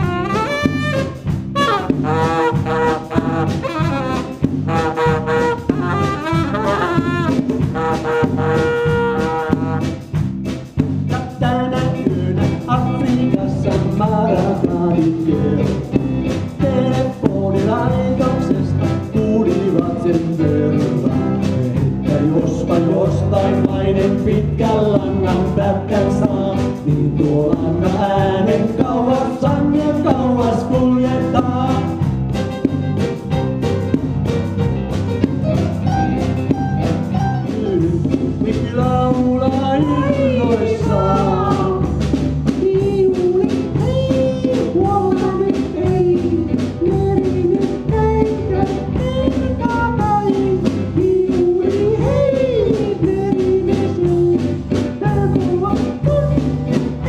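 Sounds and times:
man singing: 0.0s - 10.0s, 11.0s - 32.3s, 37.2s - 57.0s
saxophone: 0.0s - 10.1s
live jazz band playing: 0.0s - 57.0s.

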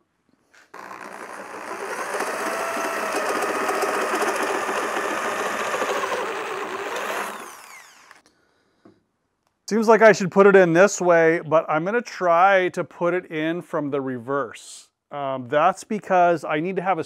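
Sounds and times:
electric drill whining: 0.7s - 8.2s.

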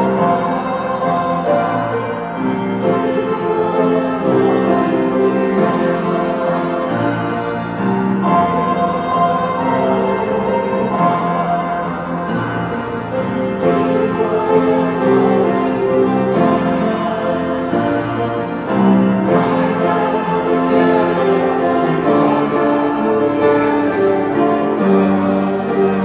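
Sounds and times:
hymn music: 0.0s - 26.0s.

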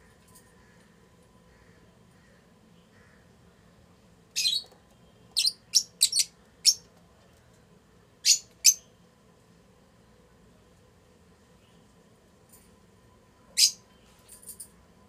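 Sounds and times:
lovebirds chirping: 4.4s - 6.9s.

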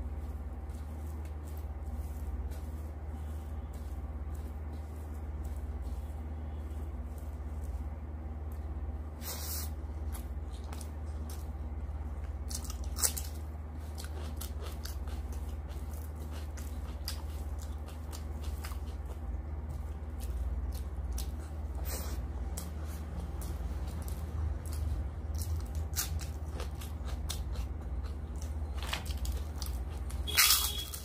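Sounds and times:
fingers squishing rice on metal plate: 0.0s - 11.6s
steady low hum: 0.0s - 31.0s
chewing: 10.0s - 31.0s.

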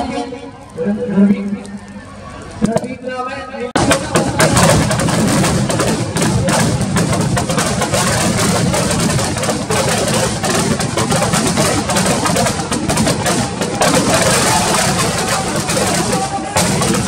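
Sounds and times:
firecrackers banging and crackling: 3.8s - 17.0s.

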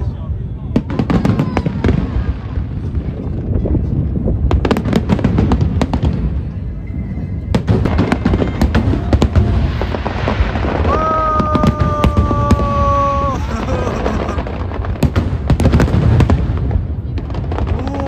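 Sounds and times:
fireworks crackling and banging: 0.0s - 18.0s.

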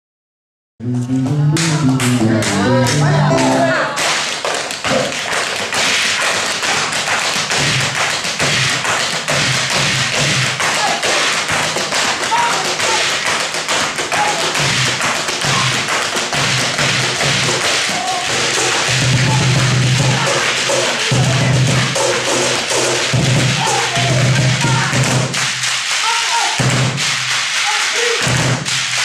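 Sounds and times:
cajon beat thumping: 0.8s - 25.8s
tap dancing on wooden board: 4.0s - 20.6s.

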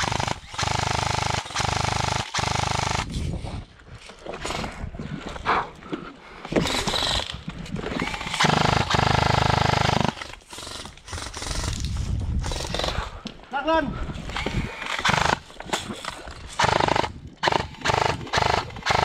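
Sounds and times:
airsoft rifle automatic bursts: 0.0s - 3.1s, 8.0s - 11.8s, 14.8s - 15.5s, 16.6s - 19.0s.

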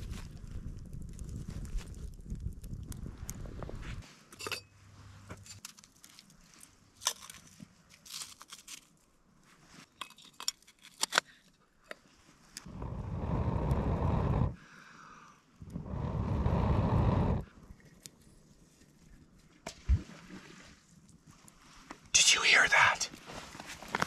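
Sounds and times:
breath blowing into embers: 12.6s - 17.6s.

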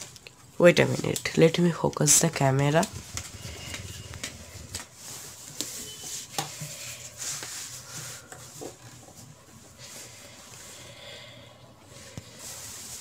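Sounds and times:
soft rubbing: 2.4s - 10.9s, 11.9s - 13.0s.

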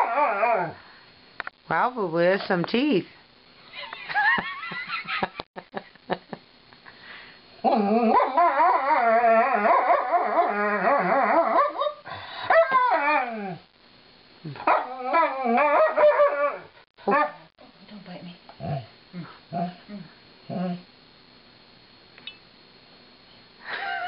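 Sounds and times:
dog howling: 0.0s - 0.8s, 7.6s - 13.6s, 14.6s - 17.4s.

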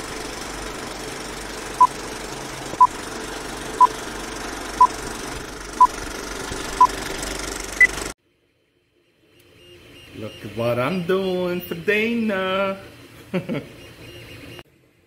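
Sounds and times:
rattling projector whirr: 0.0s - 8.2s.

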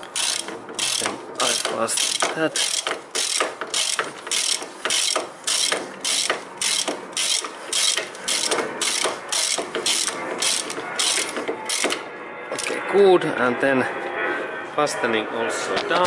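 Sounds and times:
ratchet wrench clicking: 0.1s - 11.9s.

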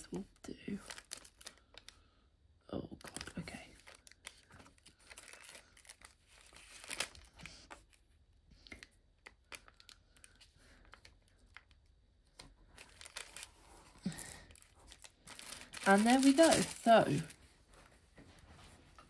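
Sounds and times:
plastic bags crinkling: 0.8s - 1.9s, 3.0s - 7.9s, 12.6s - 17.5s.

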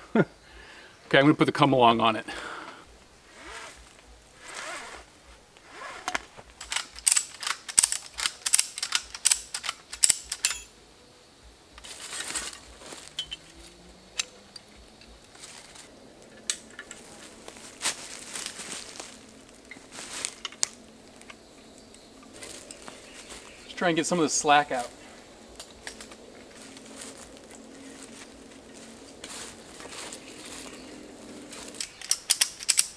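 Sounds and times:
rustling: 3.0s - 10.7s, 11.7s - 32.9s
metallic ratchet clicks and rattles: 6.6s - 10.7s, 31.8s - 32.9s.

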